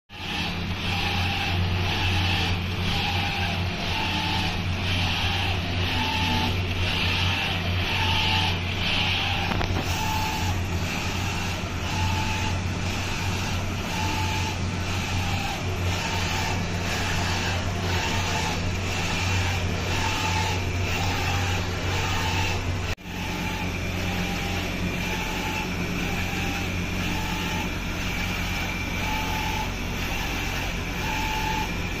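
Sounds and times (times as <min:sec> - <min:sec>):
print carriage whirring: 0:00.1 - 0:32.0
printer motor and fan hum: 0:00.1 - 0:32.0.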